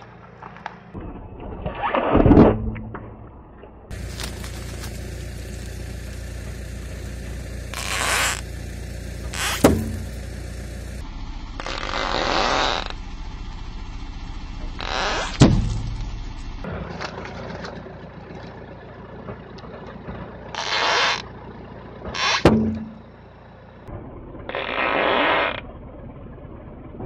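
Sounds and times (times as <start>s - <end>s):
low engine hum: 2.6s - 27.0s
tyre crunching over gravel: 3.9s - 8.6s
balloon popping: 7.7s - 8.4s, 9.2s - 10.1s.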